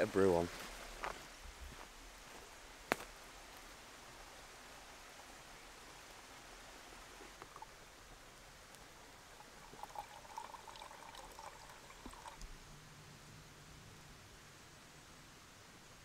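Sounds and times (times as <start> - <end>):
faint water trickle into mug: 9.0 - 12.5.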